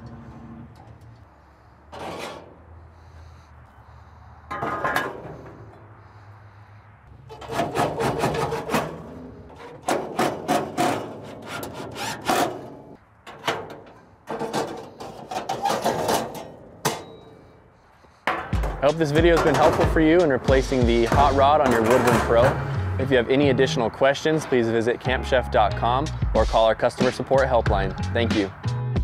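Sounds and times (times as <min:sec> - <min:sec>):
metal parts clanking and scraping: 0:00.0 - 0:06.2, 0:07.1 - 0:23.3.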